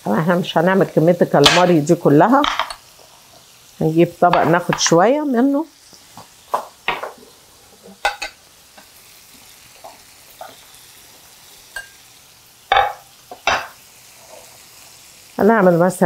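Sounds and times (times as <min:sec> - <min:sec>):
lemon sizzling in a frying pan: 0:00.0 - 0:16.0
dishes clinking: 0:02.4 - 0:02.8, 0:07.9 - 0:08.4, 0:12.7 - 0:13.8
plate knocking on stone counter: 0:04.3 - 0:04.8, 0:06.5 - 0:07.2, 0:12.7 - 0:13.8.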